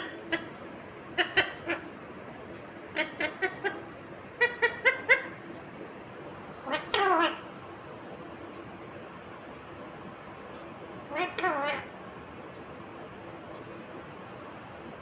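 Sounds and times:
parakeet chattering calls: 0:00.0 - 0:07.5, 0:10.7 - 0:12.1.

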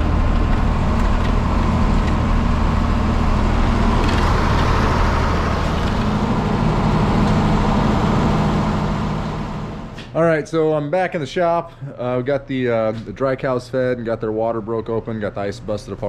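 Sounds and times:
tractor engine running: 0:00.0 - 0:10.1.

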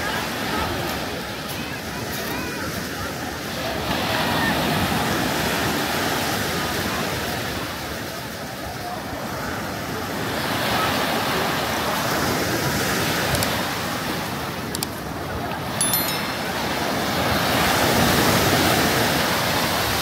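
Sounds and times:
sea waves washing onto beach: 0:00.0 - 0:20.0.

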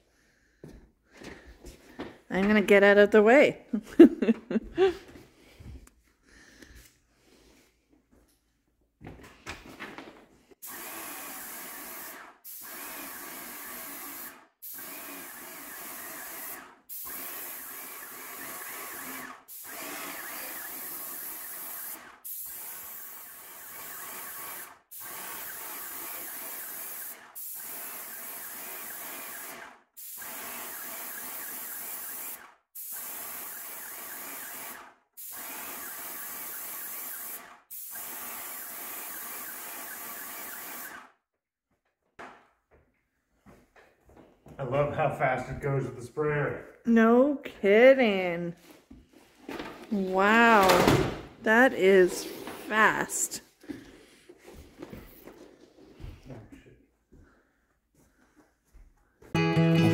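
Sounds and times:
paint sprayer hissing: 0:10.6 - 0:41.0.

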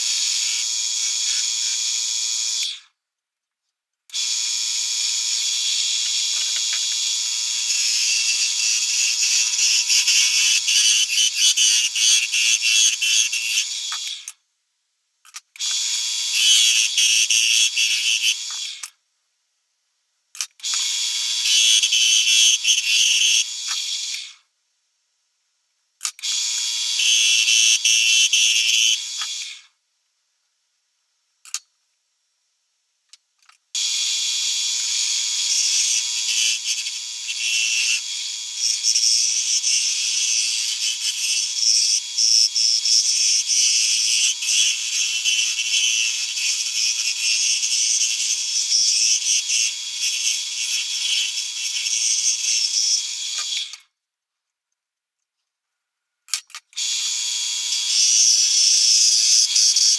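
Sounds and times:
wood lathe whining: 0:04.1 - 0:14.2, 0:15.6 - 0:18.9, 0:20.7 - 0:24.2, 0:26.3 - 0:29.5, 0:33.8 - 0:53.8, 0:56.8 - 0:59.9.

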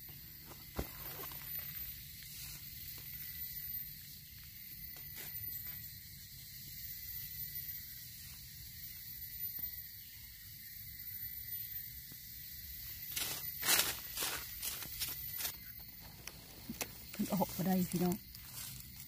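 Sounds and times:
high-pitched forest hiss: 0:00.0 - 0:19.0
dry leaves crackling: 0:13.1 - 0:15.6, 0:17.1 - 0:19.0.

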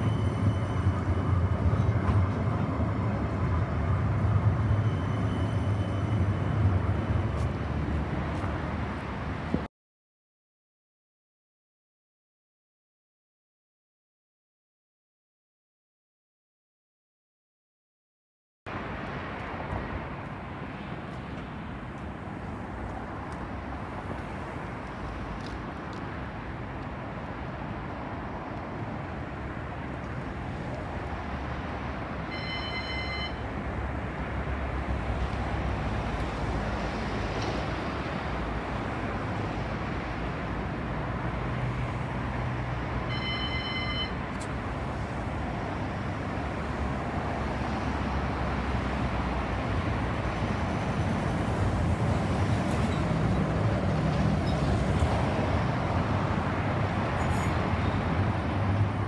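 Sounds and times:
short electronic tone: 0:00.0 - 0:01.3, 0:04.6 - 0:06.7
tram running noise: 0:00.0 - 0:09.7, 0:18.7 - 0:59.0.

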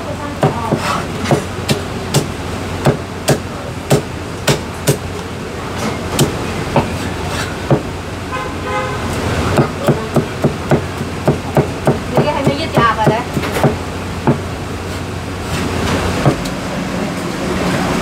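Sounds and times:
cleaver chopping on wooden block: 0:00.4 - 0:05.0, 0:09.6 - 0:14.4
horn honking: 0:08.3 - 0:09.2.

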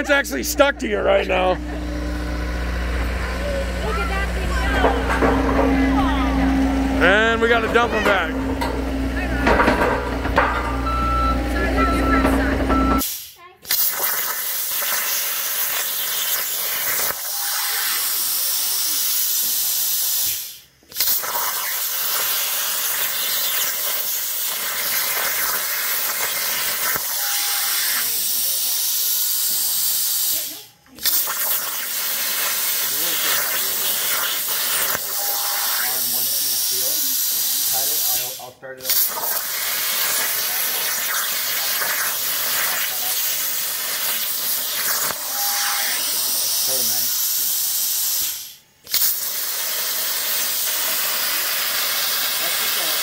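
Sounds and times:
plasma cutter hissing: 0:00.0 - 0:10.8, 0:11.6 - 0:53.0.

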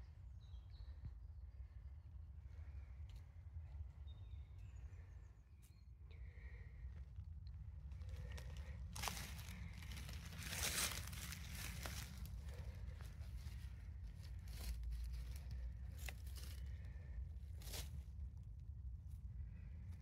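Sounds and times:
low rumble: 0:00.0 - 0:20.0
rustling and crackling: 0:07.8 - 0:16.8.

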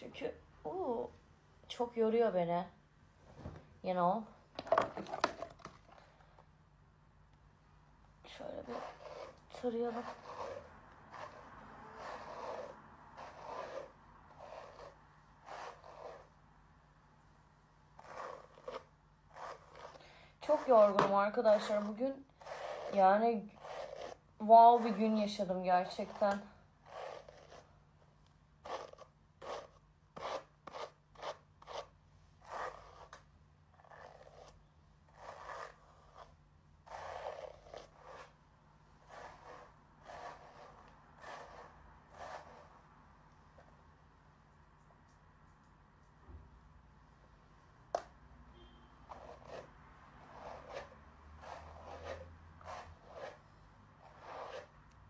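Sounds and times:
hairbrush through wet hair: 0:08.5 - 0:16.4, 0:18.0 - 0:27.7, 0:39.0 - 0:42.8, 0:49.1 - 0:54.8.

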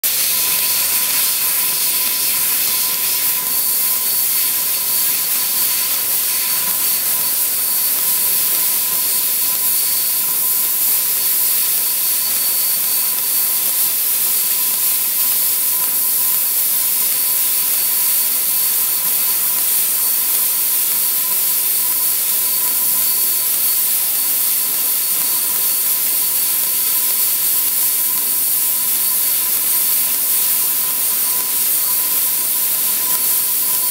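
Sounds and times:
assist gas jet hissing: 0:00.0 - 0:13.2.

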